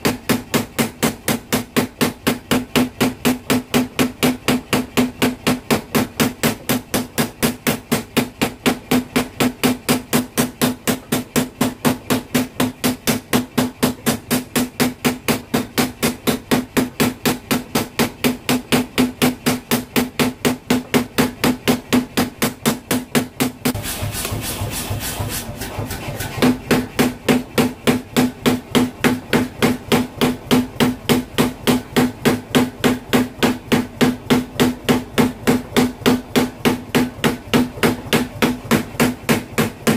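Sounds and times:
power hammer striking metal: 0.0s - 39.9s.

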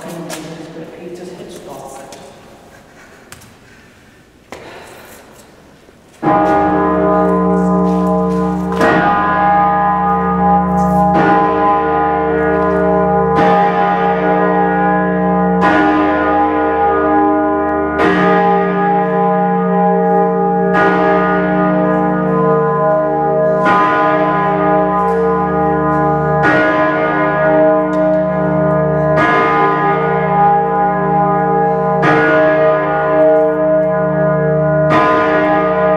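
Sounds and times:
big bell ringing: 6.2s - 35.9s.

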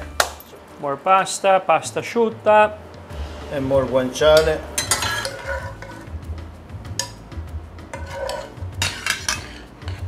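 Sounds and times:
fork scraping ceramic bowl: 4.9s - 6.2s, 7.9s - 10.0s.

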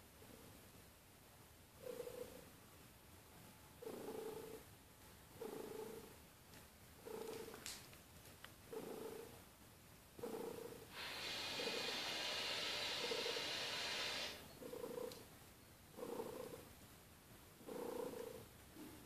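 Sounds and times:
steady hiss: 0.0s - 19.0s
cat purring: 1.8s - 2.5s, 3.8s - 4.7s, 5.3s - 6.2s, 7.0s - 7.7s, 8.7s - 9.4s, 10.2s - 15.3s, 15.9s - 16.8s, 17.6s - 19.0s.

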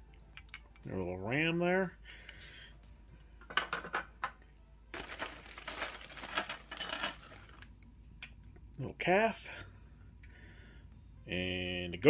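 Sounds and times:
plastic bag crinkling: 4.9s - 7.7s.

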